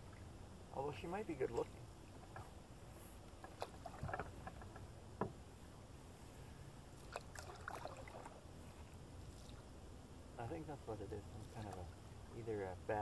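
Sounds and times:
low steady rumble: 0:00.0 - 0:13.0
paddle splashing in water: 0:01.6 - 0:02.6, 0:03.2 - 0:04.8, 0:07.0 - 0:08.4, 0:11.3 - 0:12.0.

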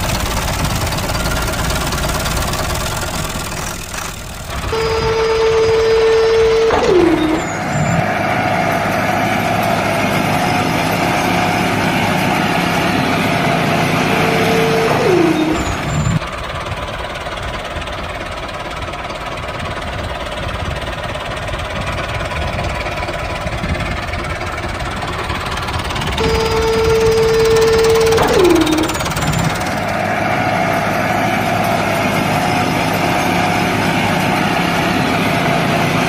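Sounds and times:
mini tractor engine running: 0:00.0 - 0:36.0
short falling whine: 0:04.5 - 0:08.5, 0:14.0 - 0:16.2, 0:26.1 - 0:30.9.

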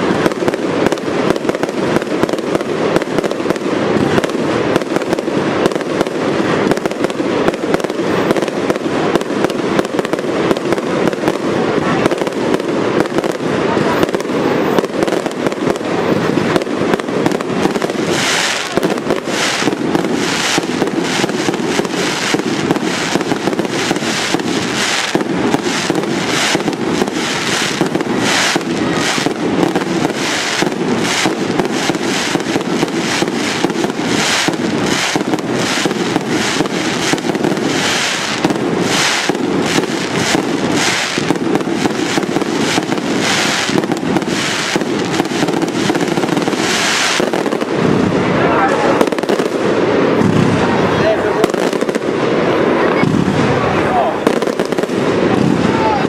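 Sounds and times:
fireworks bursting and crackling: 0:00.0 - 0:56.0.

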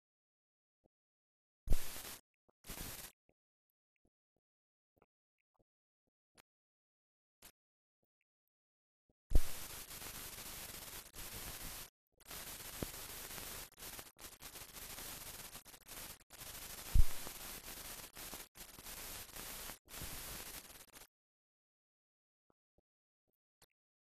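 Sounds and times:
film soundtrack static hiss: 0:01.7 - 0:03.1, 0:09.3 - 0:21.1.

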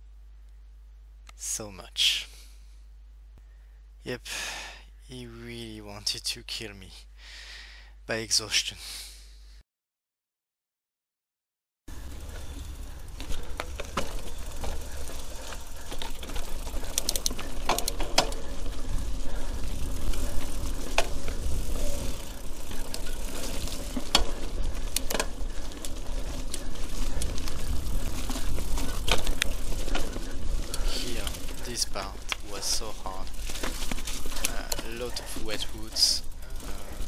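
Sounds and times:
bike chain and frame rattling: 0:11.9 - 0:37.0
wind rumble on microphone: 0:26.8 - 0:30.7.

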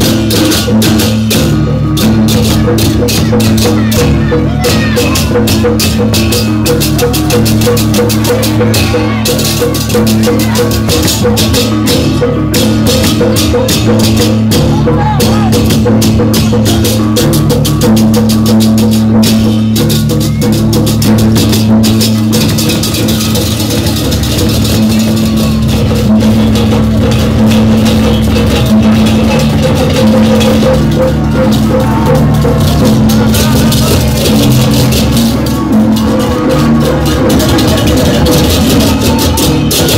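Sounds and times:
cymbals clashing: 0:00.0 - 0:39.9
drums: 0:00.0 - 0:39.9.

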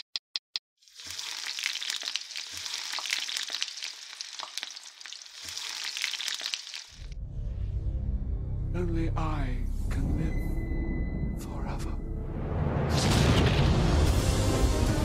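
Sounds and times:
egg sizzling in a pan: 0:00.8 - 0:07.2.

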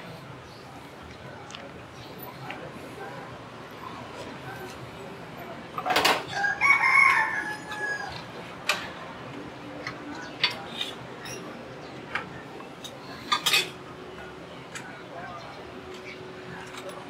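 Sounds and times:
rooster crowing: 0:06.3 - 0:08.2.

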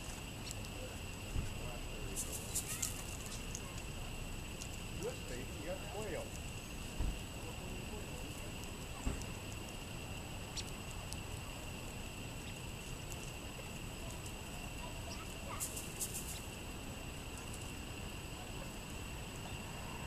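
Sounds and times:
steady high-pitched hum: 0:00.0 - 0:20.0
faint ticks: 0:10.5 - 0:11.2.

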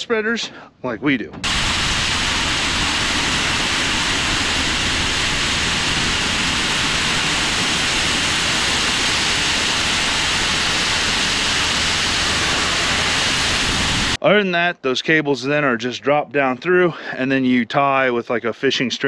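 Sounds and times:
aeration fan rushing air: 0:01.4 - 0:14.2
low hum: 0:01.4 - 0:14.2.

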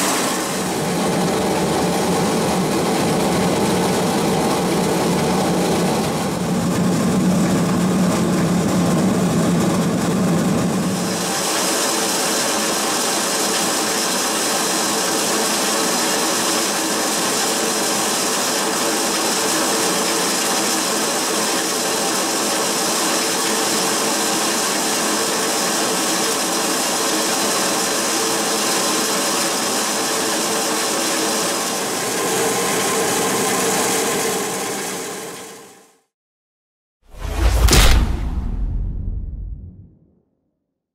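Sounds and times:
grain crusher machine running: 0:10.9 - 0:16.0.

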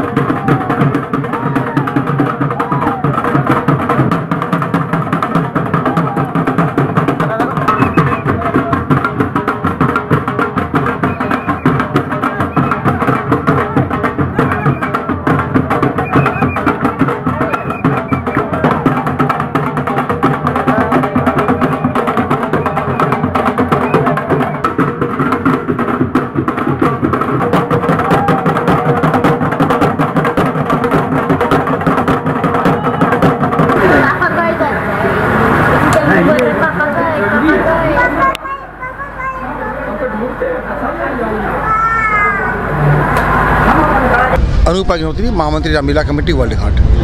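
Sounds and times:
barrel drums beaten fast: 0:00.0 - 0:34.5, 0:44.4 - 0:47.0
crowd voices: 0:00.0 - 0:47.0.

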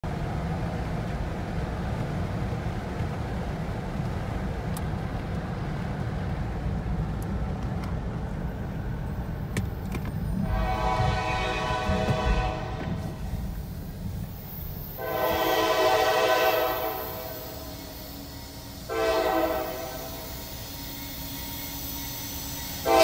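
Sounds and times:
car road noise: 0:00.0 - 0:15.2
locomotive air horn chord: 0:10.4 - 0:13.3, 0:15.0 - 0:23.0.

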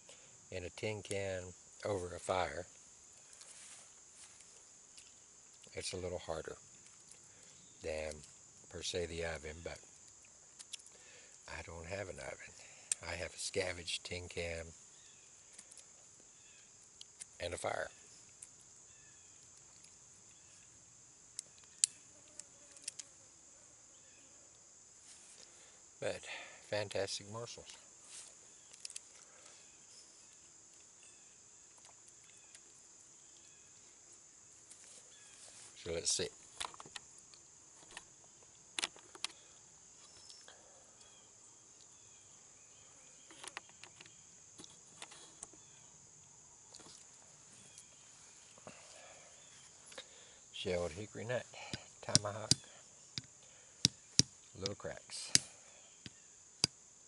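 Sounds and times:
high insect drone: 0:00.0 - 0:57.0
tomahawk tapping nut shells: 0:51.6 - 0:56.8.

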